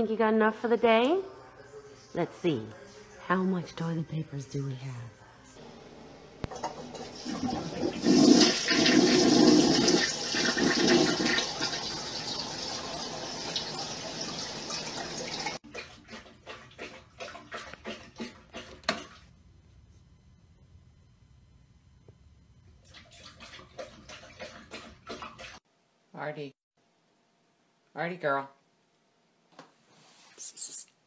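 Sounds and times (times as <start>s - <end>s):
toilet flushing: 6.5s - 19.3s.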